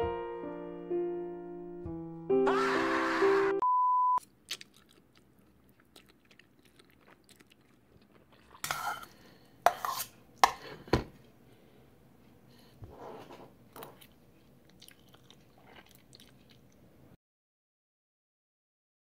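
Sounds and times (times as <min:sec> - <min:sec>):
electronic beep: 0:03.6 - 0:04.2
chewing: 0:04.2 - 0:09.5, 0:13.9 - 0:16.9
person slurping noodles: 0:04.6 - 0:10.8.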